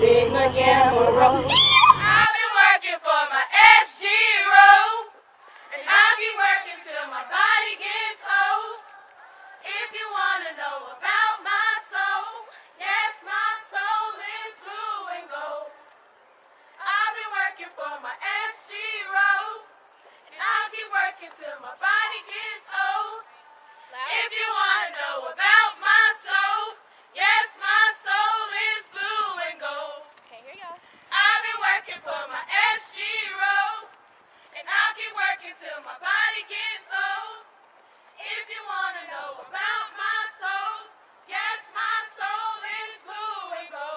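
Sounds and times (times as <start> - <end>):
woman singing unaccompanied: 0.0 - 5.1
women singing a chant: 0.0 - 15.9, 16.8 - 30.1, 31.1 - 37.5, 38.1 - 43.9.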